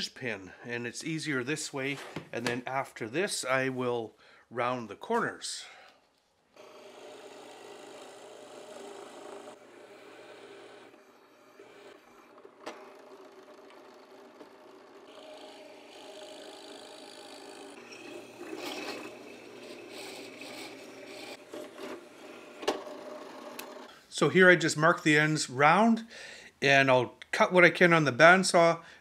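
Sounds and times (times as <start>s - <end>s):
drill press boring wood: 6.6s - 23.9s.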